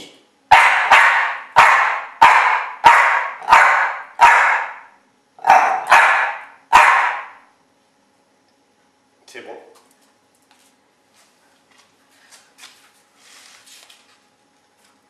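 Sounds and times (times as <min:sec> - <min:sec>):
dog barking: 0:00.5 - 0:07.4.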